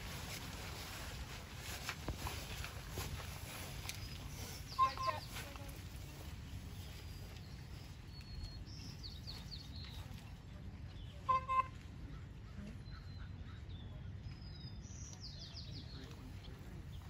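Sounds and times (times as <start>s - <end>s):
wild birds chirping: 1.2s - 17.0s
loud pitched bird calls: 4.0s - 5.4s.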